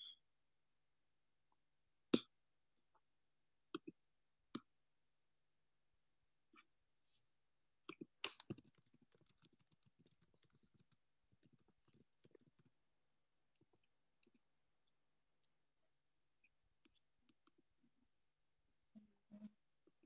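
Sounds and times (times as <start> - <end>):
clicks and rustles: 8.2 - 12.8.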